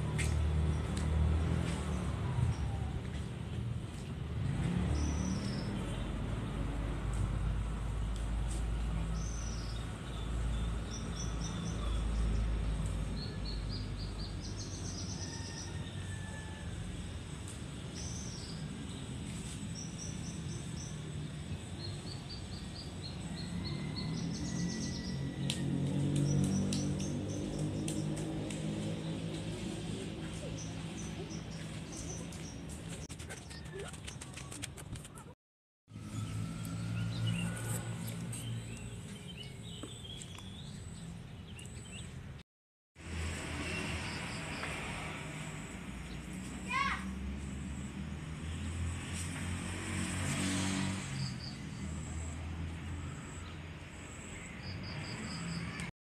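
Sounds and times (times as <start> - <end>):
small birds chirping: 17.7 - 34.6.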